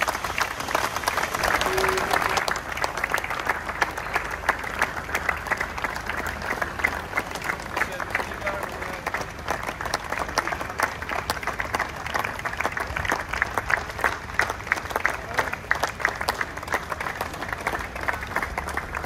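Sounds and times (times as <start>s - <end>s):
crowd applauding: 0.0s - 19.0s.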